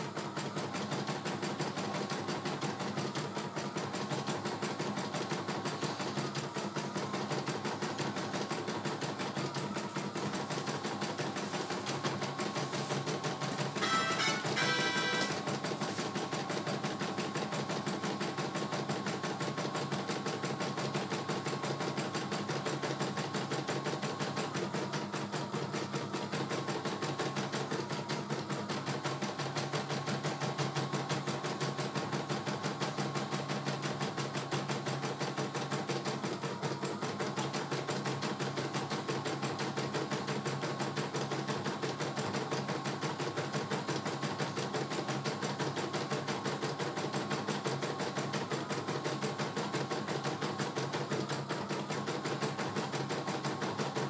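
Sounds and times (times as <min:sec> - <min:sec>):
embroidery machine needle stitching: 0:00.0 - 0:54.0
motor hum: 0:05.8 - 0:16.5.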